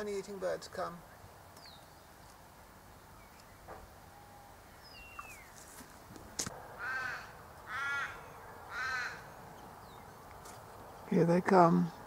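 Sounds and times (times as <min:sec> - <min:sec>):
raven cawing: 0:06.6 - 0:09.5.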